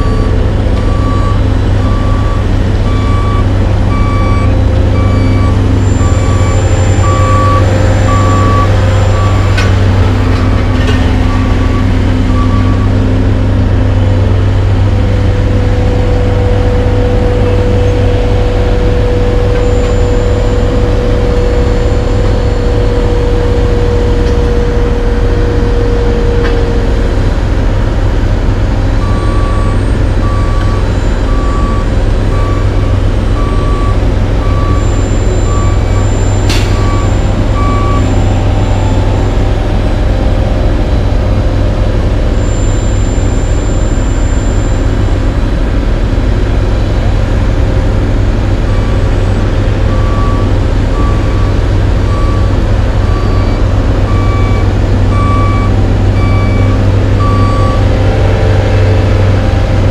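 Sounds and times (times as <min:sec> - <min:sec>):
backup alarm beeping: 0:00.0 - 0:13.1
heavy diesel engines running: 0:00.0 - 0:59.9.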